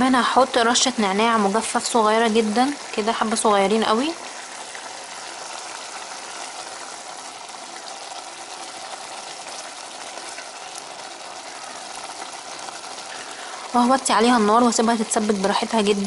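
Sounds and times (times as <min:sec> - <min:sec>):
sauce bubbling and sizzling: 0:00.0 - 0:16.0.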